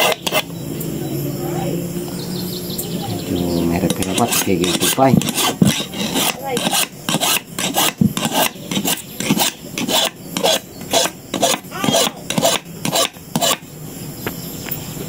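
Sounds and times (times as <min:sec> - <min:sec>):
file rasping on metal point: 0:00.0 - 0:00.5, 0:03.8 - 0:13.6.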